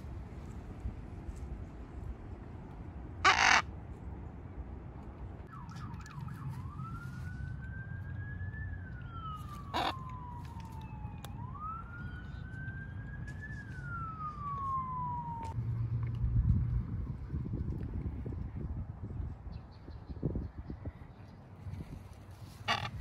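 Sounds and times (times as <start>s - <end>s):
macaw squawk: 3.2s - 3.6s, 9.7s - 10.0s, 22.6s - 23.0s
distant siren wailing: 5.4s - 15.6s.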